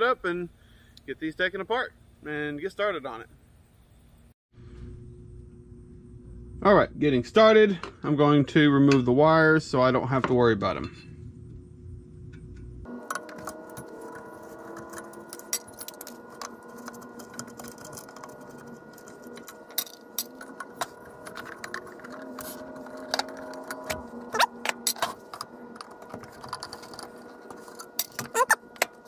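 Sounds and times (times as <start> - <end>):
faint steady hum: 0.0 - 29.0
metal covers clinking: 12.9 - 29.0.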